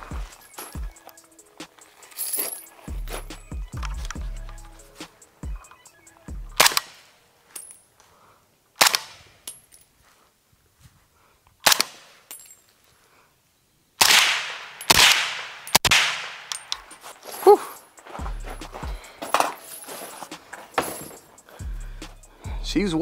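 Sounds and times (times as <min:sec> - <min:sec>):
suppressed rifle shots: 0:06.6 - 0:07.0, 0:14.0 - 0:16.8.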